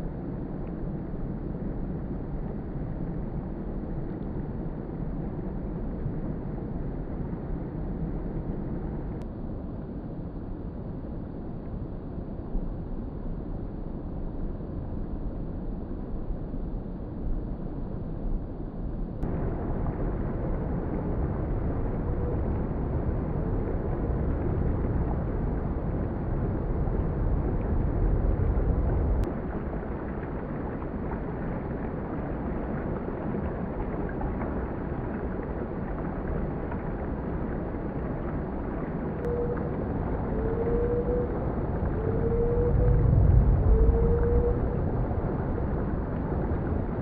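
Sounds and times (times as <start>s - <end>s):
faint rising whistles: 42.0s - 44.7s.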